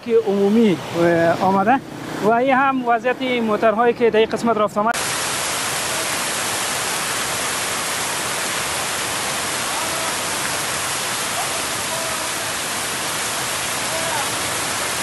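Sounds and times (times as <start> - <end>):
heavy rain on canvas awnings: 5.0 - 15.0
rainwater pouring off awnings: 5.0 - 15.0.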